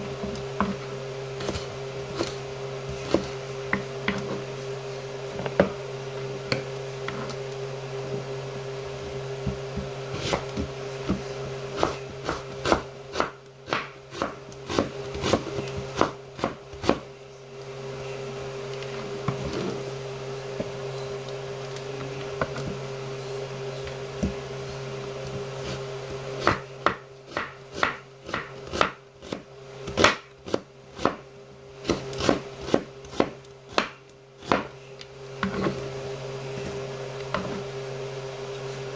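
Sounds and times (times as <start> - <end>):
steady low hum: 0.0 - 38.9
knife chopping on wooden board: 9.5 - 17.0, 26.4 - 31.2, 31.8 - 34.8.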